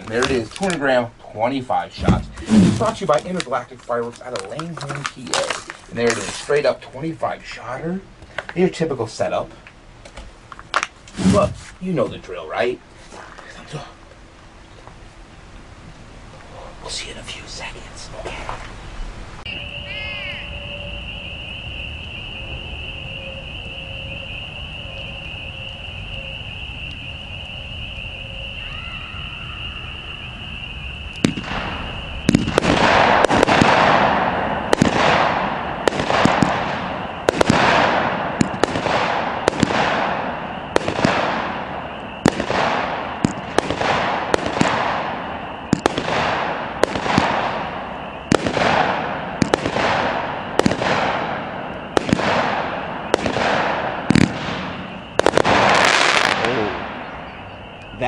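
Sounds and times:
firework shots: 0.0 - 7.1, 10.1 - 12.2, 29.7 - 58.0
crackle of glitter: 2.8 - 7.1
steady high-pitched tone: 18.9 - 58.0.

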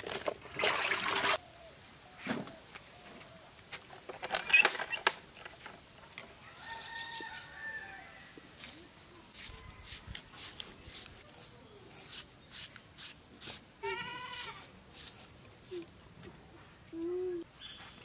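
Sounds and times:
rooster crowing: 6.4 - 8.2.

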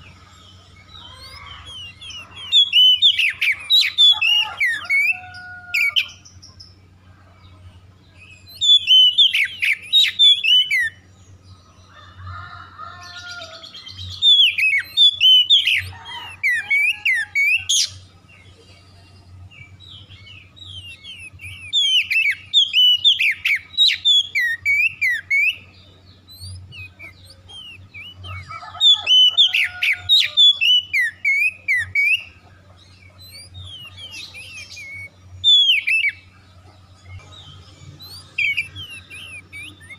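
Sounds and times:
bird singing whistled phrases: 0.9 - 6.2, 8.4 - 11.0, 13.9 - 15.9, 20.6 - 25.7, 26.3 - 32.3, 33.3 - 36.2, 38.0 - 39.9.

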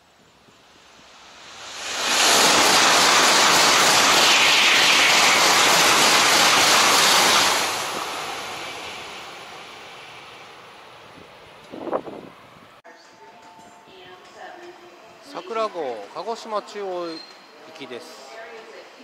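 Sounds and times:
high-speed train passing: 0.0 - 12.8.

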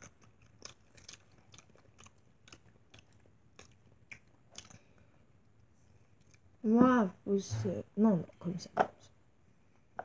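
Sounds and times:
chewing strawberries: 0.0 - 5.3, 6.0 - 6.6.

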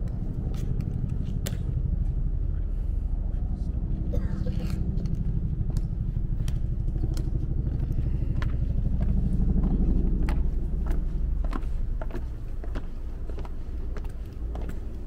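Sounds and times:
loud low rumble: 0.0 - 15.0
hard shoes clicking on stone: 5.0 - 15.0.

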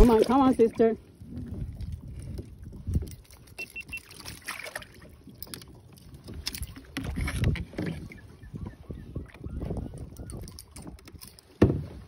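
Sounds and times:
water sloshing: 0.0 - 12.0
faint electronic beeps: 3.6 - 4.2
knocks against a kayak hull: 11.6 - 12.0.

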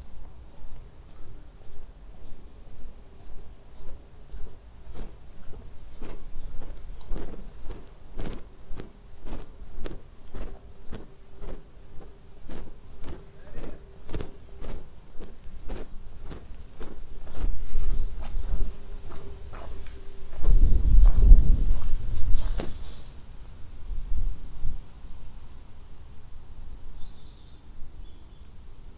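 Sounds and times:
footsteps walking: 0.0 - 23.0
faint steady hum: 0.0 - 28.9.

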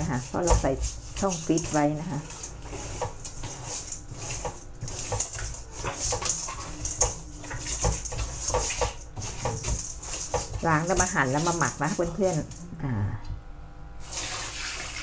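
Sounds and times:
tap water running into bowl: 4.2 - 12.6, 14.0 - 15.0.

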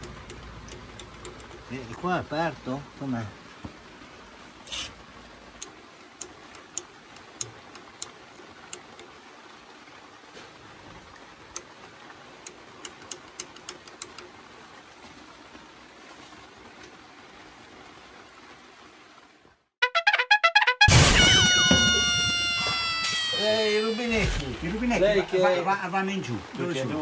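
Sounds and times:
light sharp ticks: 0.0 - 1.9, 5.6 - 9.2, 11.5 - 11.8, 12.4 - 14.4
faint steady hiss: 0.0 - 19.8, 20.9 - 27.0.

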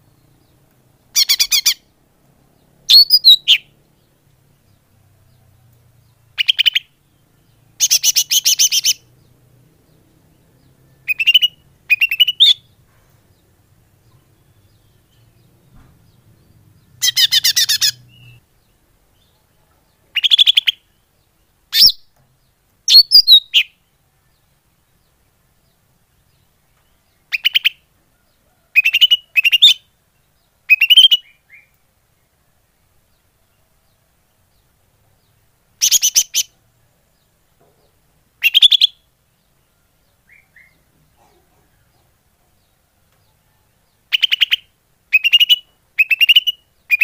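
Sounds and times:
bird chattering calls: 11.1 - 12.7, 17.0 - 18.4, 30.7 - 31.3, 35.8 - 36.5, 38.4 - 39.0, 44.1 - 47.0.

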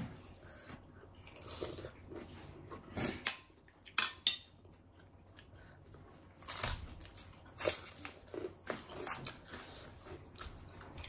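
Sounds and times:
cracker crunching: 6.2 - 11.0.

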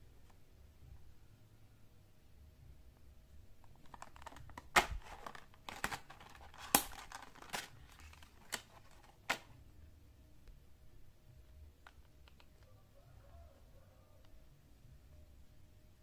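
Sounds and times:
plastic and card snapping: 3.6 - 9.5, 11.8 - 12.7
plastic blister pack crinkling: 3.6 - 9.5.

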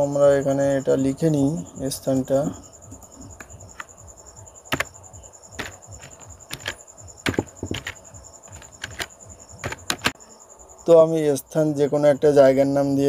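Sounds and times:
computer keyboard typing: 4.7 - 10.2.

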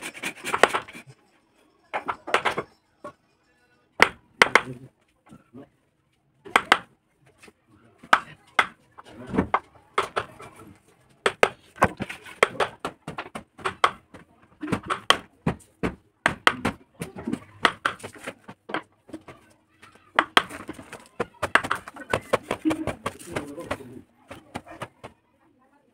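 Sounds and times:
mallet striking chisel into wood: 4.0 - 4.7, 6.5 - 6.9, 11.2 - 16.8, 17.6 - 18.2.

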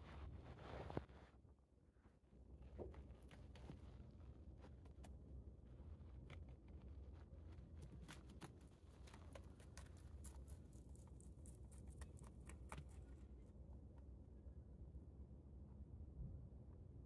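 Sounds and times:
rabbit chewing leaves: 1.7 - 14.6.

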